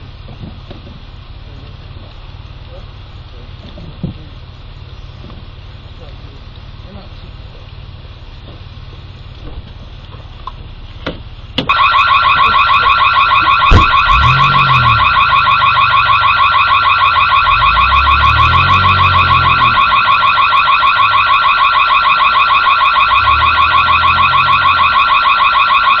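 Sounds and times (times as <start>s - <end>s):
car engine revving: 10.8s - 26.0s
electronic security alarm pulsing: 11.6s - 26.0s
sharp bang: 13.6s - 15.0s.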